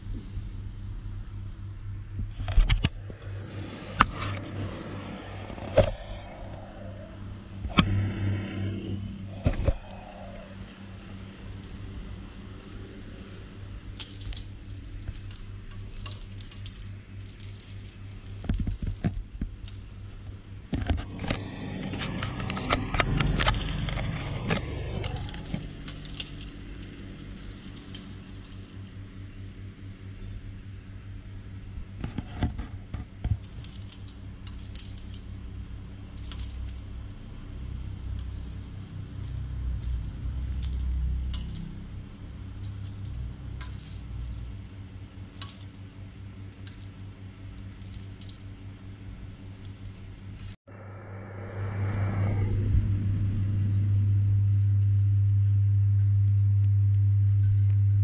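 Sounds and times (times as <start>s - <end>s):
small bell jingling: 12.5s - 19.9s, 24.6s - 29.1s, 33.4s - 35.5s, 36.1s - 37.2s, 38.0s - 42.0s, 42.6s - 50.6s.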